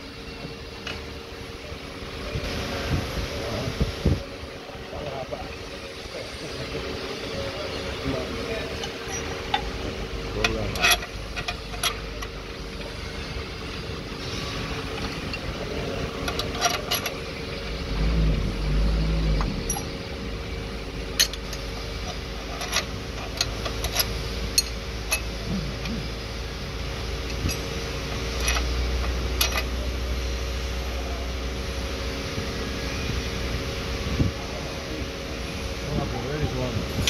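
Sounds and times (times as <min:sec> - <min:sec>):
steady mechanical hum: 0:00.0 - 0:37.0
spanner clinking on bolts: 0:08.8 - 0:13.2, 0:14.2 - 0:17.4, 0:19.4 - 0:20.0, 0:21.1 - 0:26.0, 0:27.0 - 0:29.9
low rumble: 0:17.6 - 0:21.2.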